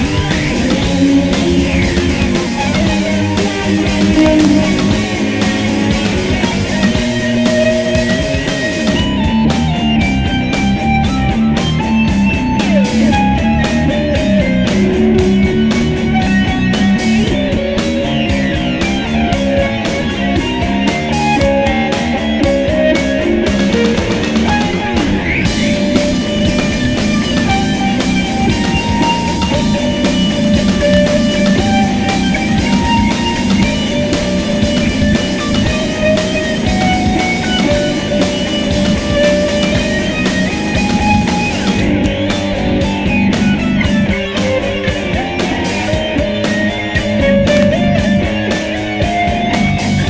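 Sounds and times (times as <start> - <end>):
heavy rock music: 0.0 - 50.0.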